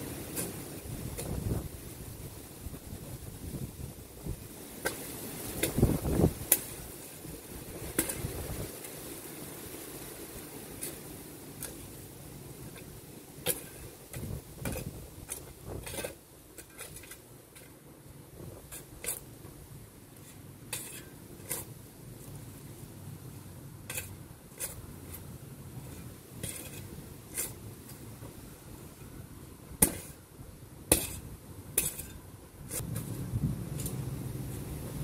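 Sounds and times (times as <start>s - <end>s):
shovel chopping stony soil: 0.2s - 1.6s, 4.8s - 6.8s, 7.8s - 8.9s, 12.8s - 17.7s, 25.9s - 28.0s, 29.8s - 30.2s, 30.9s - 33.1s.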